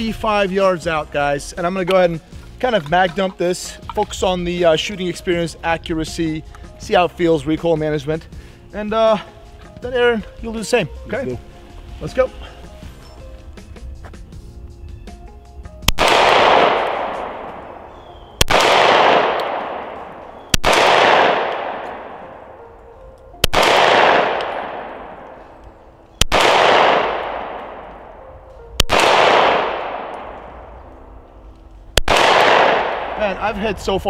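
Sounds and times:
pistol shots with echo: 15.8 - 22.7, 23.4 - 25.6, 26.2 - 28.2, 28.8 - 31.2, 32.0 - 33.6.

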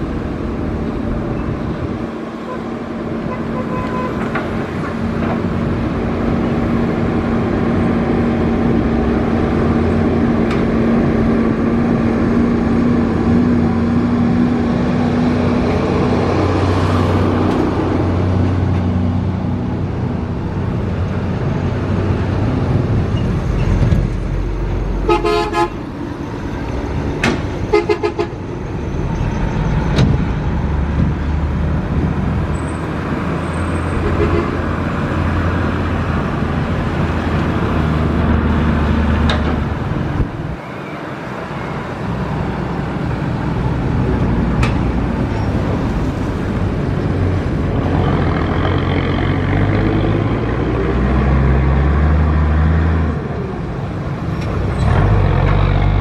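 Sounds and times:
vehicle horn tooting: 3.3 - 4.2, 25.1 - 25.8.

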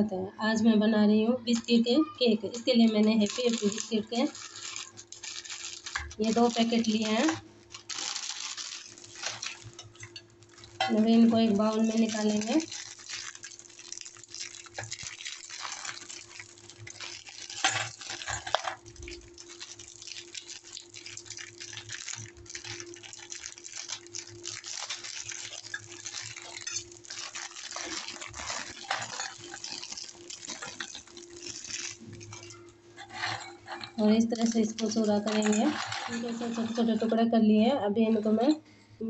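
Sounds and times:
faint steady hum: 0.0 - 39.0
plastic wrappers crinkling: 2.5 - 37.2
biscuits clicking into metal bowl: 2.9 - 32.7, 33.4 - 37.0.

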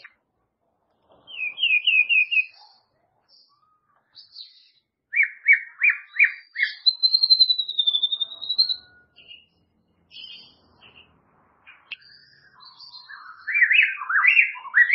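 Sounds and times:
songbird whistling: 1.3 - 2.8, 3.5 - 9.5, 11.8 - 14.9.

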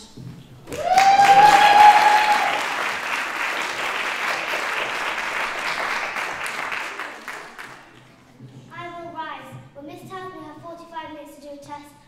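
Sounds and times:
crowd cheering: 0.7 - 8.0
audience applauding: 0.7 - 8.1.

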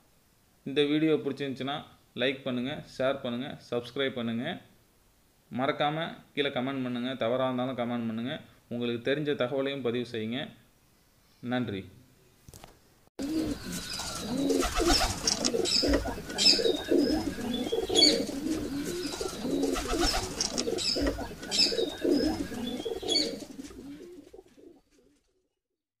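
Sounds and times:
small birds chirping: 13.2 - 24.5
pigeons cooing: 13.2 - 25.2.

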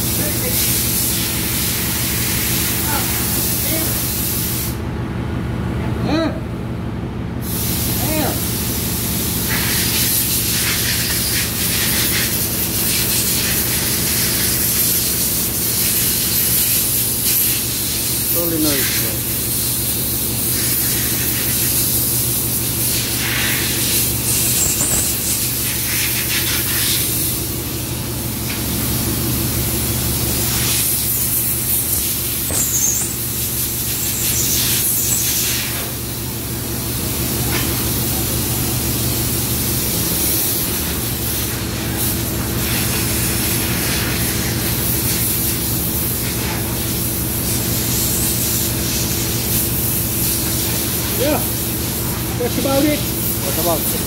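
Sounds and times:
engine room hum: 0.0 - 54.0
loud even hiss: 7.4 - 27.6, 30.2 - 36.2.

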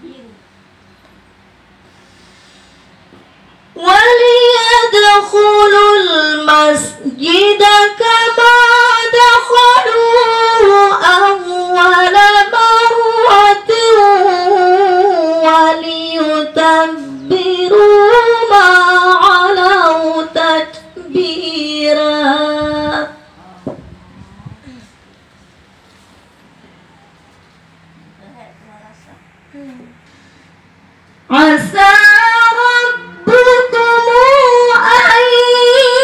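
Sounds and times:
woman reciting melodically: 0.0 - 0.8, 3.6 - 25.3, 31.1 - 36.0.

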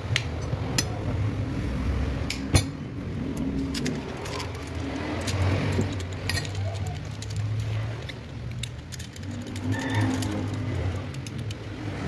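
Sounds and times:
hand tools clinking on metal: 3.5 - 11.6.

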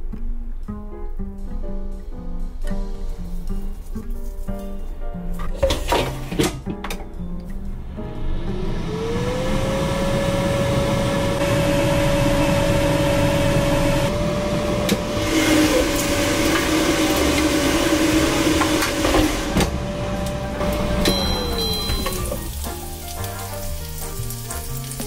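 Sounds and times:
air fryer fan whirring: 7.8 - 23.4.

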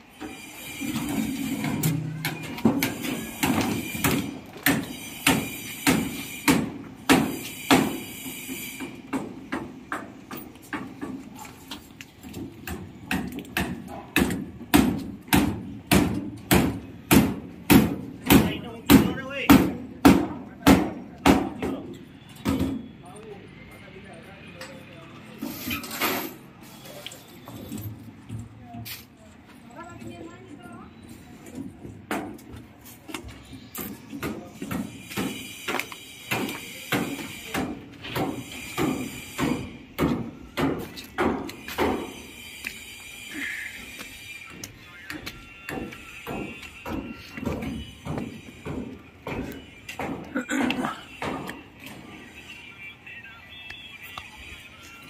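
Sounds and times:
hammer knocking on wood: 2.7 - 8.0, 12.6 - 22.8, 34.2 - 42.1, 45.7 - 50.3
footsteps on gritty concrete: 28.4 - 37.2, 40.2 - 52.3.

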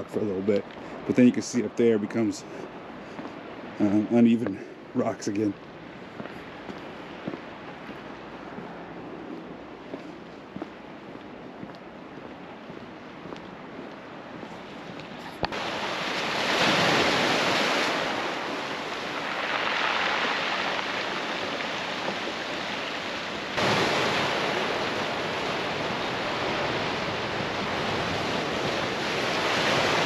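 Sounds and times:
waves washing over pebbly shore: 15.5 - 30.0.

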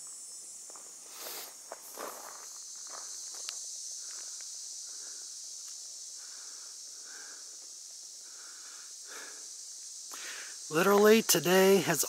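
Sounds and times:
insect chorus drone: 0.0 - 12.0
footsteps on gravel: 0.6 - 3.5.

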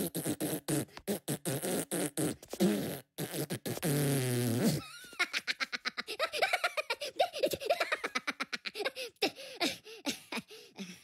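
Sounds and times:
cartoon voice beatboxing: 0.0 - 4.8
buzzing fart sound: 0.0 - 4.9.

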